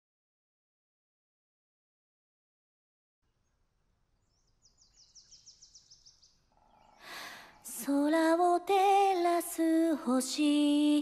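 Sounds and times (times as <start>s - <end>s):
woman singing slow melody: 7.6s - 11.0s.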